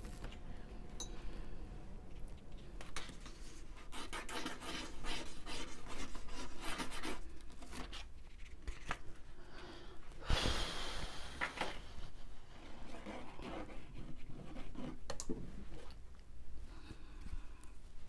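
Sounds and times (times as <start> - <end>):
wooden skewer scratching paper: 3.0 - 8.9, 12.9 - 15.1.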